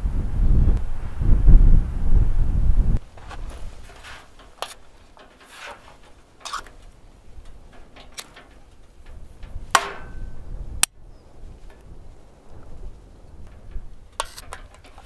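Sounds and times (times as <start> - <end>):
sharp ringing knock: 9.8 - 10.4.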